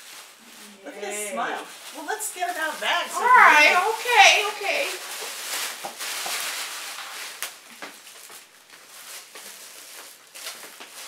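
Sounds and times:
plastic bag crinkling: 0:00.0 - 0:11.0.

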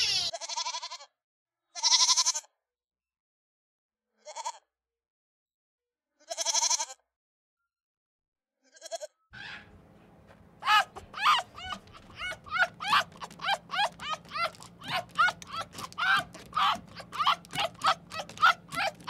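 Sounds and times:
goat bleating: 0:00.0 - 0:01.1, 0:01.8 - 0:02.4, 0:06.3 - 0:07.0, 0:08.7 - 0:09.7, 0:10.6 - 0:19.0.

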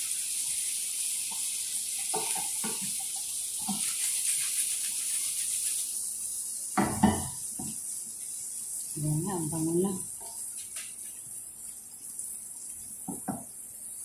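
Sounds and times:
food sizzling in butter: 0:00.0 - 0:14.0
pan clattering on grate: 0:02.0 - 0:04.0.

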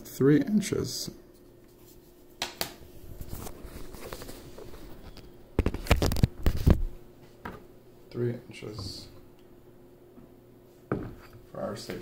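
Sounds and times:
faint rubbing and rustling: 0:03.0 - 0:07.4.

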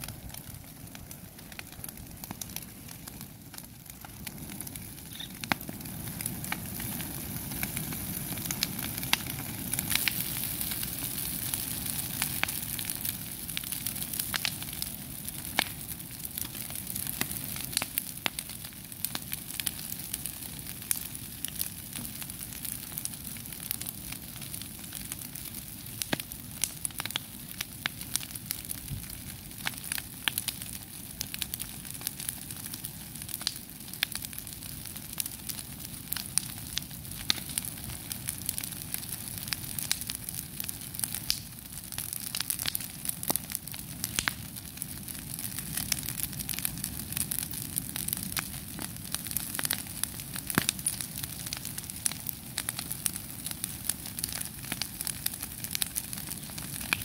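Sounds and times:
fire crackling and popping: 0:00.0 - 0:57.0.

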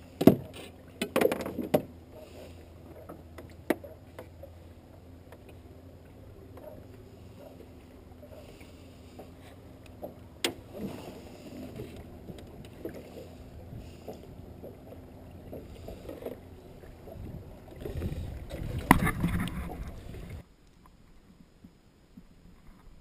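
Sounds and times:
low steady rumble: 0:00.0 - 0:23.0
knocks in an aluminum boat: 0:00.2 - 0:02.0.

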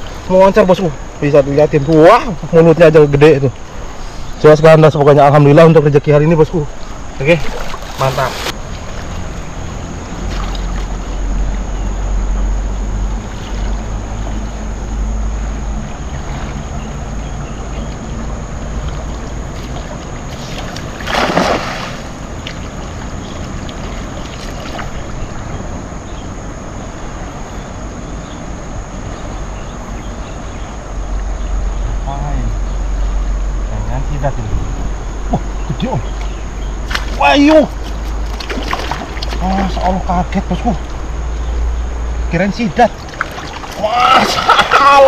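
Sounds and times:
moving water: 0:06.2 - 0:32.1, 0:34.2 - 0:45.0
net splashing into water: 0:07.4 - 0:09.2, 0:18.9 - 0:25.0, 0:36.8 - 0:39.9, 0:42.9 - 0:45.0.

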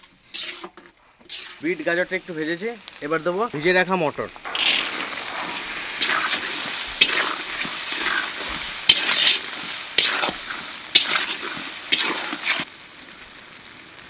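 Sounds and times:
metal spatula scraping wok: 0:00.0 - 0:02.4, 0:04.4 - 0:12.7
vegetables sizzling in hot oil: 0:00.0 - 0:14.0.

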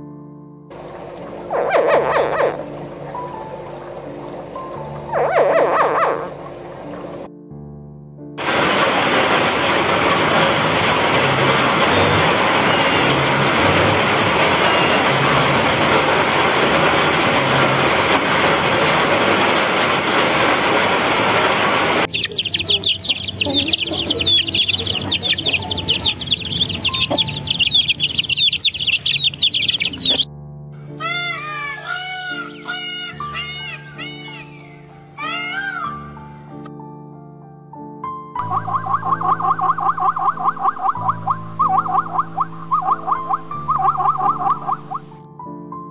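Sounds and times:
chicks and ducklings peeping: 0:22.1 - 0:30.3.

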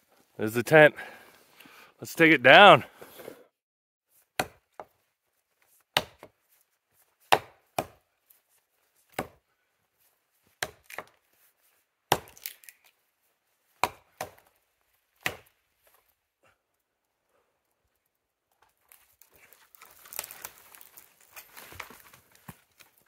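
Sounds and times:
axe chopping wood: 0:04.4 - 0:04.9, 0:05.9 - 0:06.3, 0:07.2 - 0:08.0, 0:09.1 - 0:09.4, 0:10.6 - 0:11.2, 0:12.1 - 0:12.6, 0:13.8 - 0:14.5, 0:15.2 - 0:15.5.

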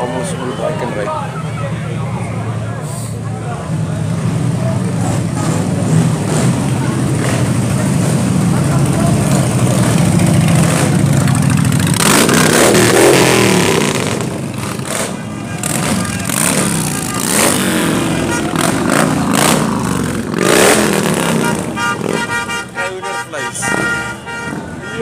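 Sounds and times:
motorcycles revving past: 0:05.0 - 0:22.3.

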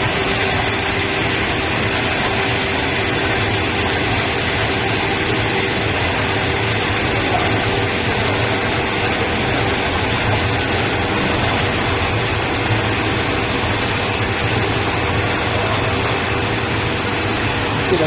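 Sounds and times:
drilling machine hum: 0:00.0 - 0:18.0.

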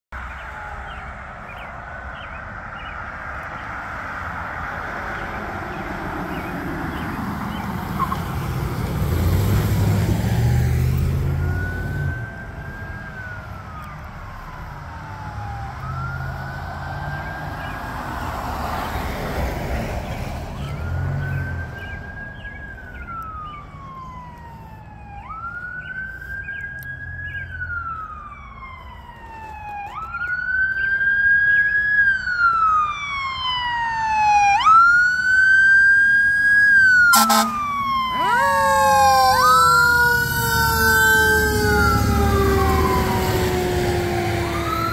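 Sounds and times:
emergency vehicle sirens: 0:00.1 - 0:44.9
vehicle rushing past: 0:03.2 - 0:13.7, 0:14.8 - 0:25.7, 0:32.1 - 0:44.9.

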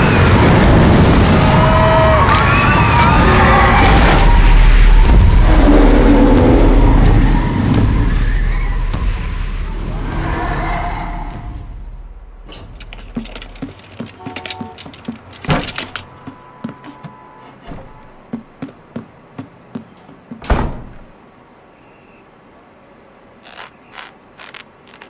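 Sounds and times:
door banging: 0:12.4 - 0:18.8, 0:19.8 - 0:21.1
footsteps on wooden floor: 0:12.9 - 0:21.1
door shutting with thunk: 0:20.3 - 0:21.1.

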